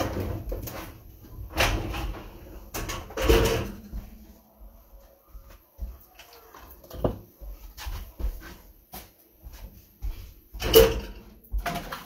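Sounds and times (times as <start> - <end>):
cookware knocking and clinking: 2.7 - 3.8.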